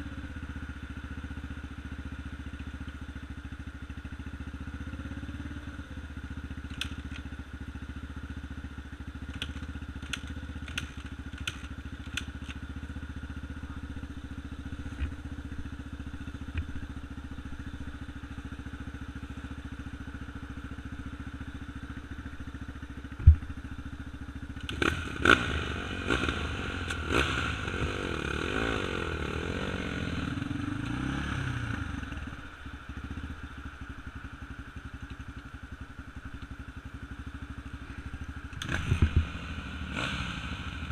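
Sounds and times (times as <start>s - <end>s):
engine idling: 0.0s - 40.9s
engine revving with clattering: 24.6s - 32.1s, 38.5s - 40.9s.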